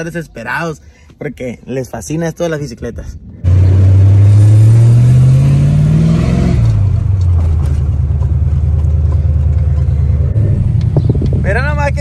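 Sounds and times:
car engine accelerating: 3.4s - 12.0s.

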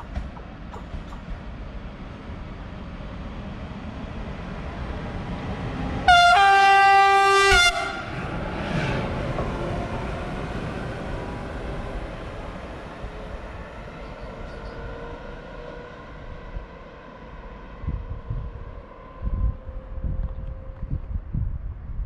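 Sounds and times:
locomotive rumbling past: 0.0s - 21.0s
locomotive horn blast: 6.0s - 8.2s.

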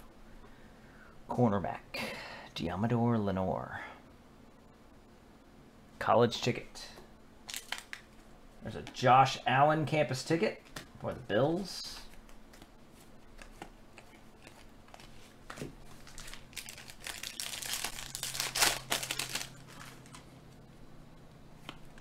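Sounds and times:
handling of cards: 7.4s - 9.0s, 11.8s - 20.3s
foil wrapper crinkling and tearing: 7.5s - 8.0s, 14.4s - 20.2s.

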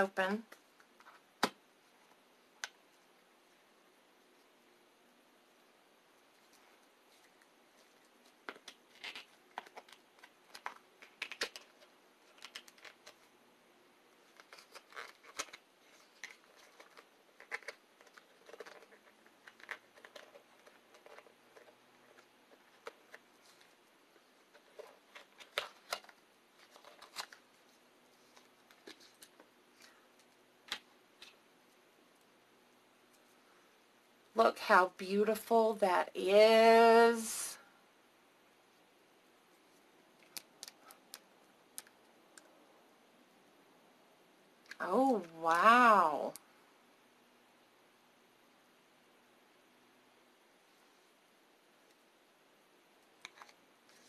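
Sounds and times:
packaging clicks scrapes and rustles: 7.2s - 13.3s, 14.3s - 23.8s, 24.5s - 27.4s.

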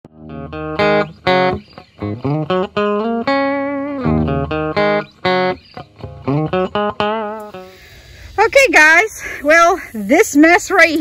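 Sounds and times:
plucked guitar melody: 0.0s - 8.2s.

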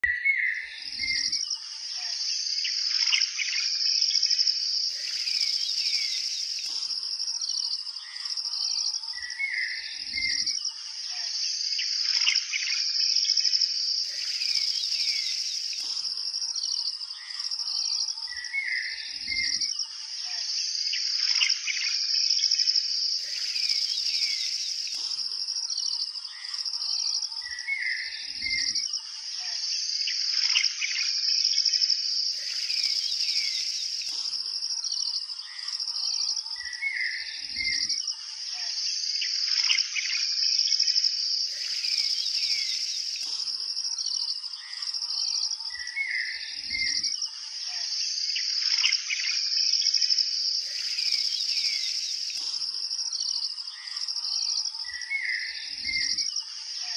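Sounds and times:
high-pitched insect drone: 0.7s - 56.9s
birds chirping: 4.9s - 10.5s, 14.0s - 19.6s, 23.1s - 28.8s, 32.3s - 37.9s, 41.4s - 47.0s, 50.6s - 56.9s.

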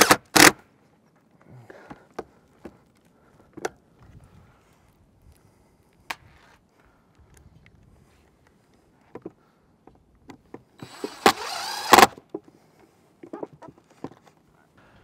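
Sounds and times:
cordless driver motor whine: 10.8s - 12.2s.

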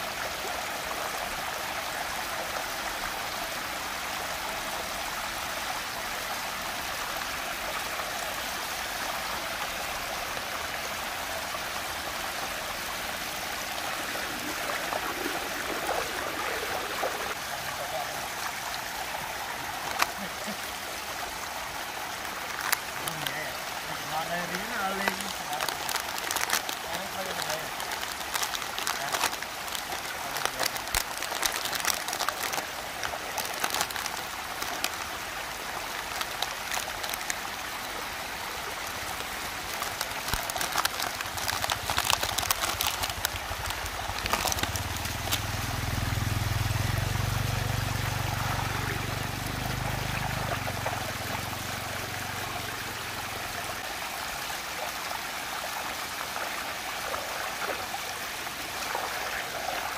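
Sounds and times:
water swirling in a whirlpool: 0.0s - 59.9s
plastic packaging crackling: 19.8s - 20.2s, 22.5s - 23.2s, 24.9s - 35.1s, 35.9s - 37.4s, 39.6s - 45.6s.

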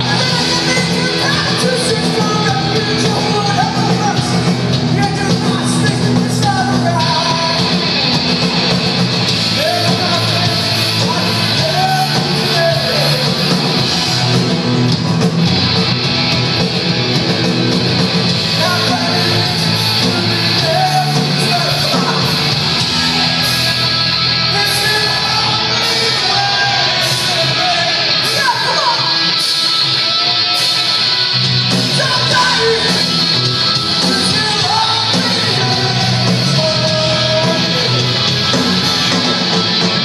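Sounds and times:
distorted electric guitars: 0.0s - 40.0s
drums: 0.0s - 40.0s
person singing: 9.5s - 13.8s, 18.5s - 31.1s, 31.8s - 39.3s.

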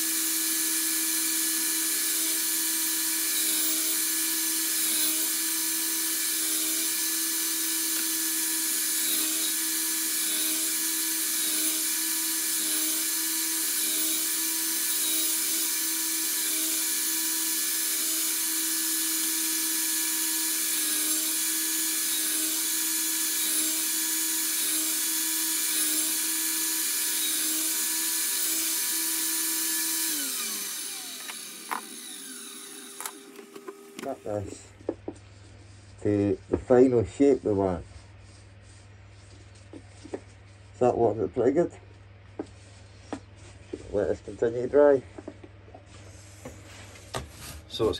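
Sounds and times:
router whining: 0.0s - 34.7s.

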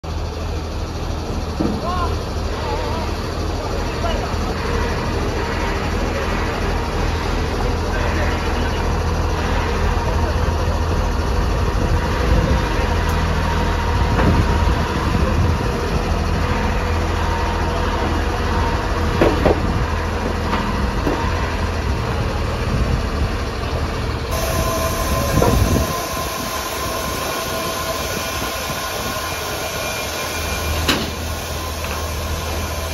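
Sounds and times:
drilling rig engine rumbling: 0.0s - 32.9s.

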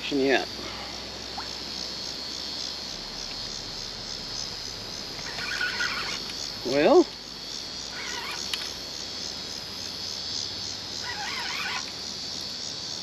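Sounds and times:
pulsing insect chorus: 0.0s - 13.0s
warbling bird calls: 4.4s - 6.8s, 7.8s - 8.7s, 10.9s - 11.9s.

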